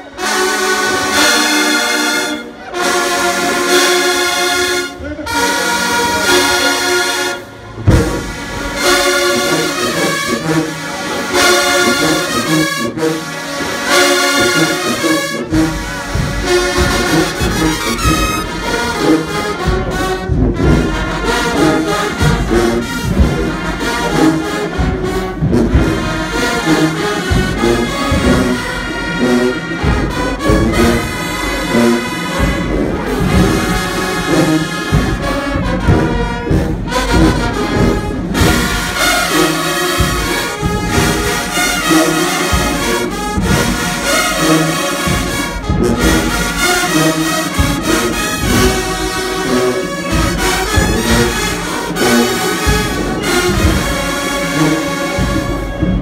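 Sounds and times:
marching band brass: 0:00.0 - 0:56.0
drums and bass: 0:15.5 - 0:56.0.

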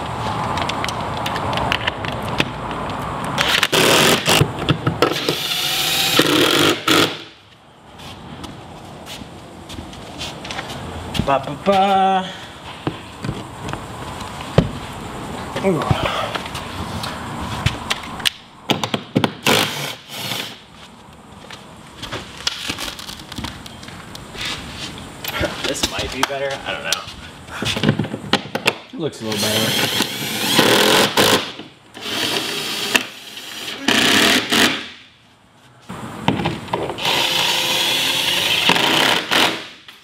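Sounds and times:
cordless drill whining: 0:29.4 - 0:31.4, 0:37.0 - 0:39.5.

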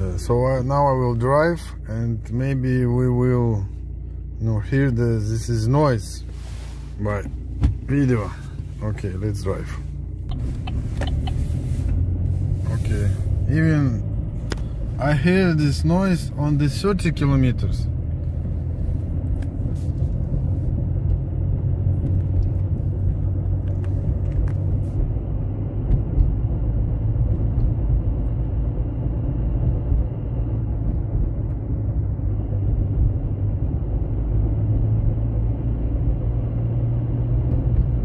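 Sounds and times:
diesel car engine rumble: 0:00.0 - 0:38.0.

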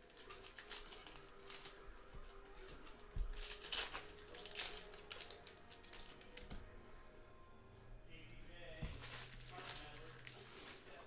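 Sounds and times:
cards rustling: 0:00.0 - 0:06.7, 0:08.8 - 0:11.0
wrappers crinkling and tearing: 0:00.0 - 0:06.7, 0:08.8 - 0:11.0.

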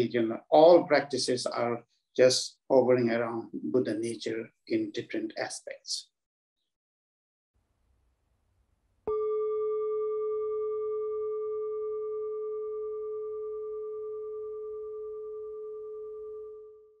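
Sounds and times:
singing bowl ringing: 0:09.1 - 0:17.0.

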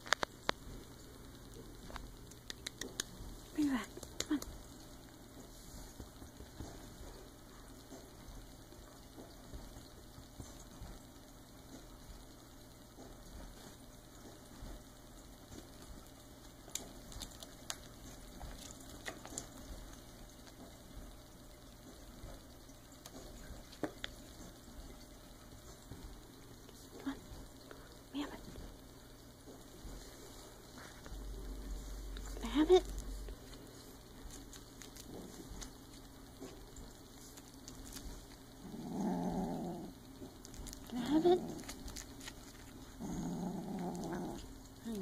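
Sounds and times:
kitten growling: 0:38.5 - 0:44.8.

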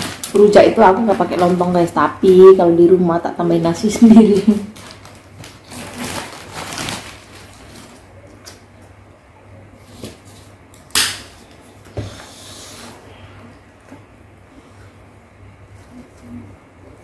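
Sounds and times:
sharp plastic crackle: 0:00.0 - 0:02.6, 0:04.2 - 0:08.7
plastic bag rustling: 0:00.0 - 0:02.7, 0:03.8 - 0:08.3
low steady hum: 0:00.0 - 0:17.0.

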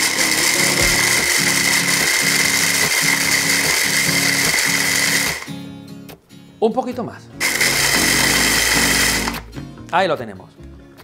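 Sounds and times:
hand blender motor whine: 0:00.0 - 0:05.6, 0:07.4 - 0:09.4.

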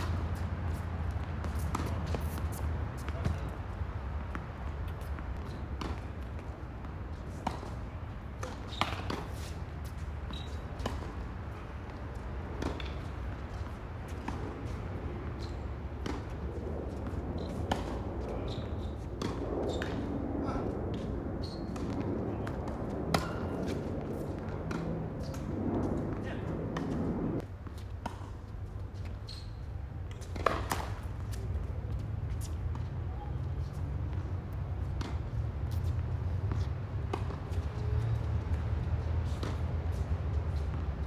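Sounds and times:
steady low hum: 0:00.0 - 0:27.6
tennis balls bouncing: 0:04.2 - 0:18.6, 0:19.2 - 0:20.0, 0:34.8 - 0:37.7
tennis balls struck by racket: 0:05.7 - 0:09.5, 0:30.2 - 0:31.1.

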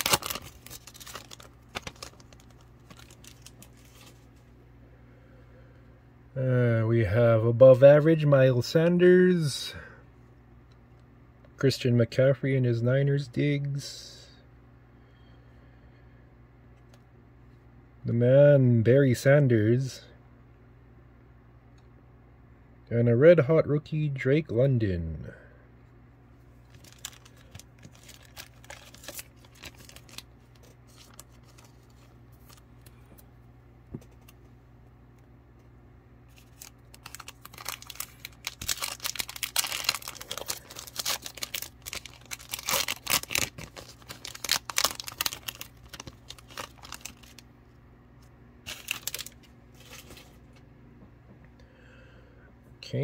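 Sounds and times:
wrapper tearing and crinkling: 0:00.0 - 0:04.3, 0:26.7 - 0:32.6, 0:36.3 - 0:47.4, 0:48.6 - 0:50.4.

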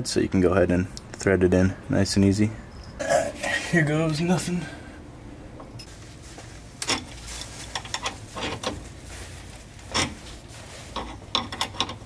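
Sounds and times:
metal tool scraping and clicking: 0:10.9 - 0:12.0.

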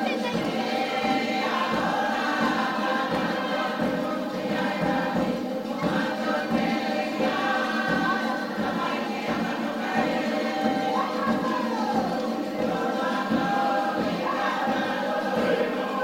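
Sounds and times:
choir singing: 0:00.0 - 0:16.0.

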